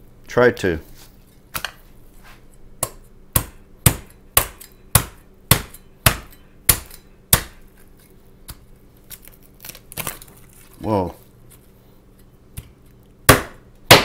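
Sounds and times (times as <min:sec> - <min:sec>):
cleaver chopping on cutting mat: 0:12.6 - 0:14.0.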